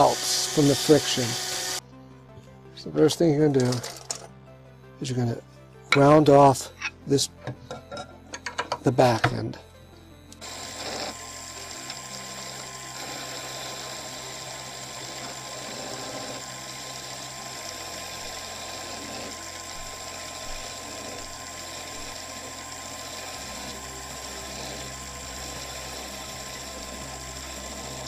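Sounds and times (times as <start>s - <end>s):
turning tool cutting wood: 0.0s - 1.8s, 10.3s - 28.0s
wood lathe motor hum and whine: 0.0s - 1.8s, 10.2s - 28.0s.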